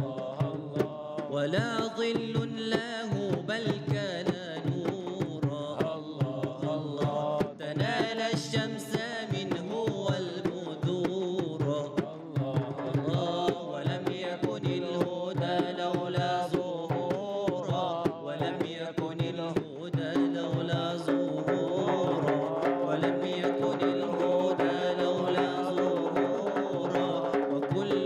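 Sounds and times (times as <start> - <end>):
frame drum rhythm: 0.0 - 28.0
person singing ornamented melody: 20.0 - 28.0.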